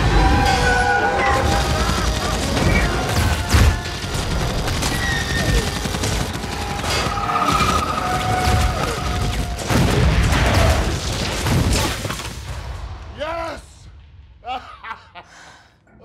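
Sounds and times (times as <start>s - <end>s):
sci-fi blaster fire and impacts: 1.3s - 13.0s
loud explosion: 8.4s - 13.2s.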